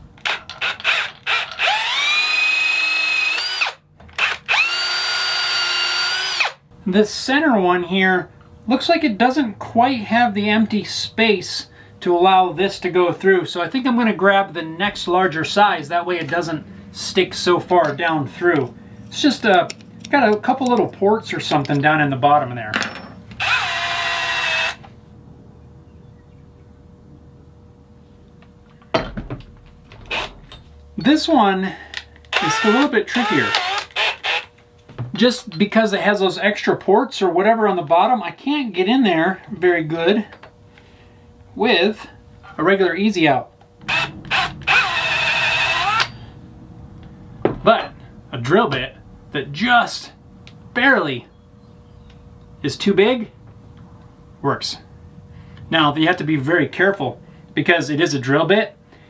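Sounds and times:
faint steady hum: 0:00.0 - 0:59.0
cordless drill motor whine: 0:00.2 - 0:06.6, 0:23.4 - 0:24.9, 0:30.0 - 0:30.6, 0:32.0 - 0:34.6, 0:43.7 - 0:46.3.

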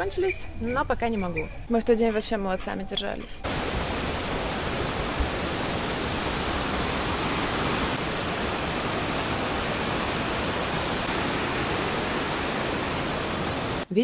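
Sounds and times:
fast-flowing water rushing: 0:03.4 - 0:13.9.

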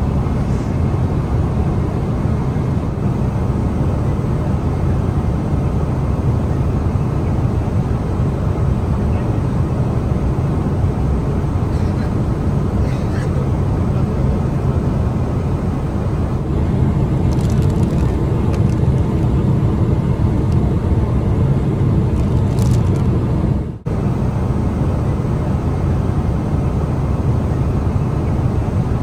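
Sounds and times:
airplane cabin rumble: 0:00.0 - 0:29.0
plastic bag crinkling: 0:17.3 - 0:18.2.

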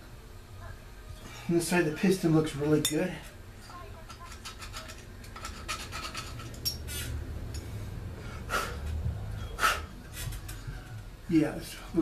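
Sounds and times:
faint low hum: 0:00.0 - 0:12.0
metal parts clicking and scraping: 0:04.0 - 0:06.9.

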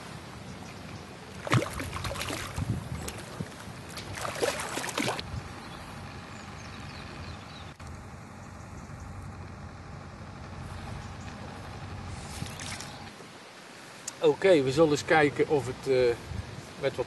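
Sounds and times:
hooked fish splashing in water: 0:01.4 - 0:05.2.

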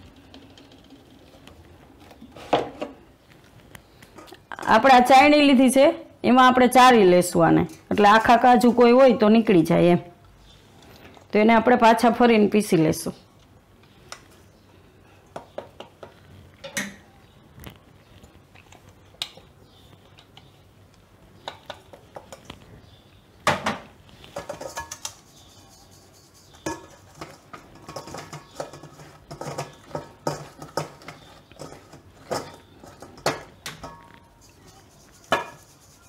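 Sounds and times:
metal sieve knocking and scraping: 0:26.5 - 0:35.8.

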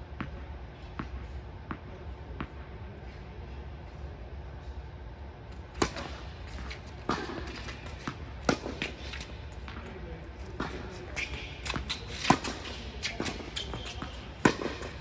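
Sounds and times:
steady hum of hall: 0:00.0 - 0:15.0
tennis ball bouncing: 0:05.5 - 0:15.0
tennis ball struck by rackets: 0:05.5 - 0:15.0.

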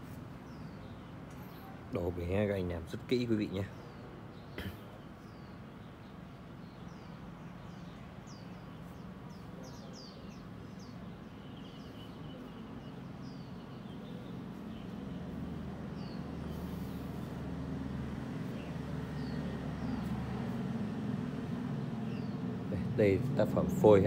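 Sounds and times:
small birds chirping: 0:00.0 - 0:24.0
bird trill: 0:06.7 - 0:17.1.

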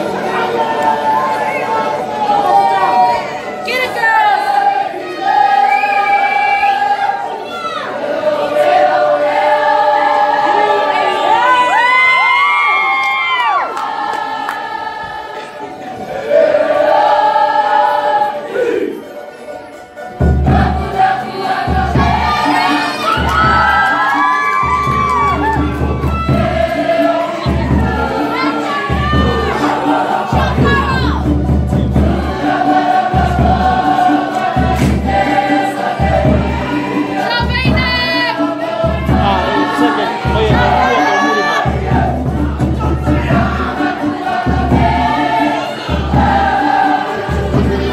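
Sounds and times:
chorus of young voices singing: 0:00.0 - 0:12.5, 0:13.2 - 0:47.9
drum beating steady pattern: 0:19.7 - 0:47.9.

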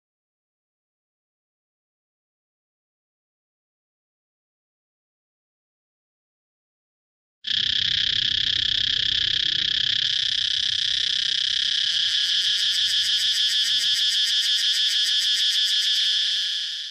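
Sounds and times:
cicadas buzzing: 0:07.5 - 0:16.9.

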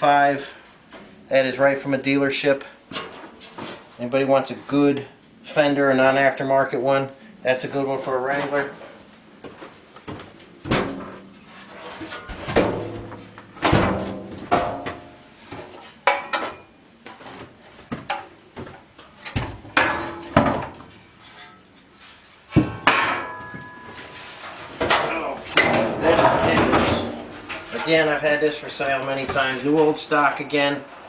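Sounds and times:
metal panels clanking and scraping: 0:10.6 - 0:17.5, 0:18.9 - 0:29.9
knocks ringing like sheet metal: 0:22.6 - 0:24.2.

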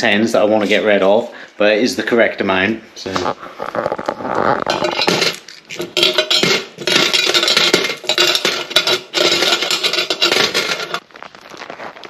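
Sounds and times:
coins clinking and rattling: 0:04.7 - 0:11.0.

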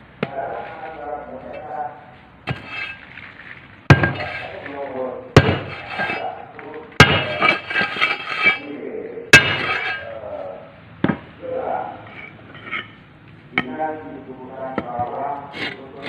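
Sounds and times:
hammer striking steel mould: 0:03.9 - 0:04.4, 0:05.4 - 0:06.2, 0:07.0 - 0:08.6, 0:09.3 - 0:10.1.

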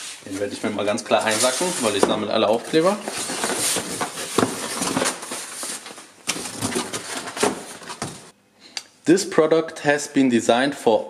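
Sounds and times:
cardboard rustling and scraping: 0:00.0 - 0:08.3.

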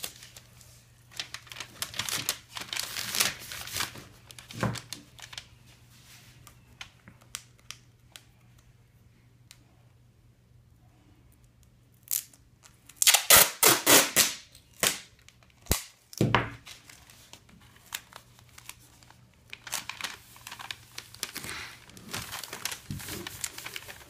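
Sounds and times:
plastic wrap crinkling: 0:00.0 - 0:08.4, 0:12.1 - 0:24.0
tape ripping off roll: 0:13.0 - 0:15.1.

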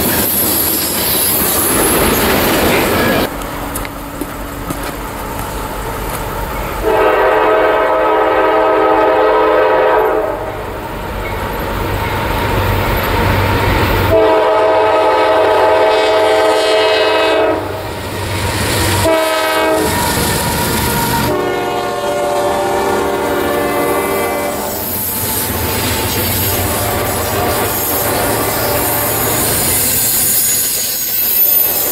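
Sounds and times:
train wheels clacking on rails: 0:00.0 - 0:07.0, 0:22.8 - 0:31.9
locomotive horn blasts: 0:06.8 - 0:10.6, 0:14.1 - 0:17.8, 0:19.0 - 0:20.1, 0:21.2 - 0:24.8.

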